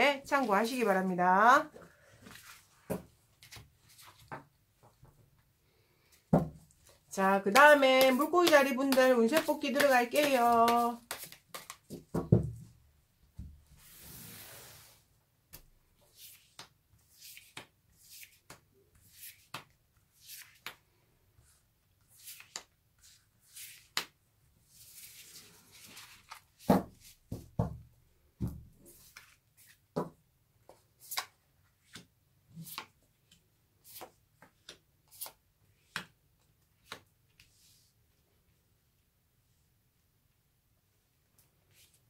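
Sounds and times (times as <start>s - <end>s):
cards rustling sweep: 7.5s - 11.9s
cards sliding and snapping: 9.8s - 11.9s, 16.1s - 20.8s, 22.1s - 24.2s, 33.8s - 36.1s.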